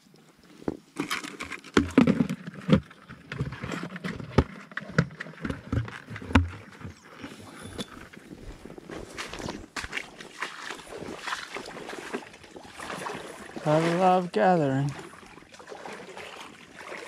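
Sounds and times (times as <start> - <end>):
rubber waders rubbing: 1.0 - 17.0
sharp knocks and thumps: 1.6 - 7.1.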